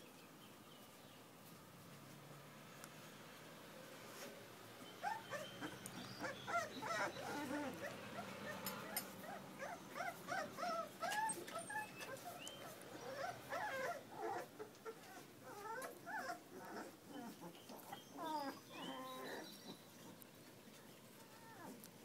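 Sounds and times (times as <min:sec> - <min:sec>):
puppies whimpering: 0:04.8 - 0:20.2, 0:21.2 - 0:21.8.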